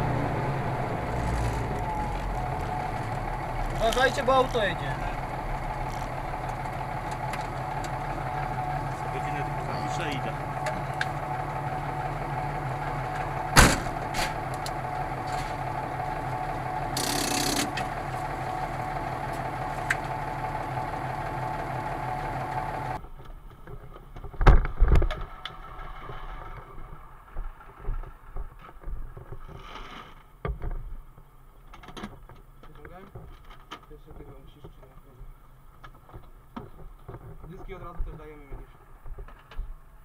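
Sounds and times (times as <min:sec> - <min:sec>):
truck engine idling hum: 0:00.0 - 0:24.4
gear knocking and clattering: 0:00.8 - 0:29.4
heavy thumps: 0:13.1 - 0:14.4.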